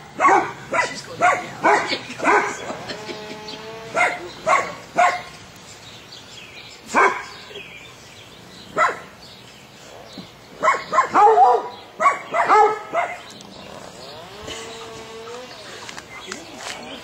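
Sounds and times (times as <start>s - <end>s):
dog barking and yipping: 0.2s - 2.7s, 3.9s - 5.3s, 6.9s - 7.4s, 8.8s - 9.1s, 10.6s - 13.3s.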